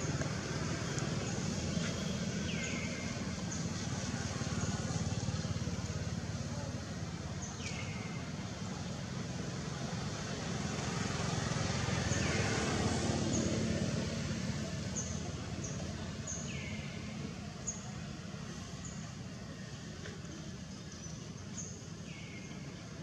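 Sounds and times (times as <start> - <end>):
motor vehicle going by: 0.0 - 22.6.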